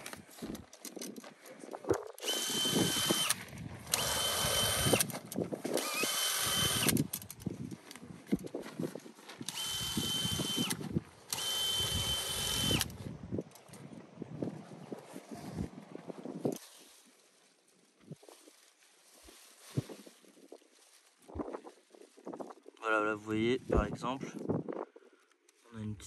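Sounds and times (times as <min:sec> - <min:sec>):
cordless drill motor whine: 0:02.2 - 0:05.1, 0:05.8 - 0:07.4, 0:09.4 - 0:13.0.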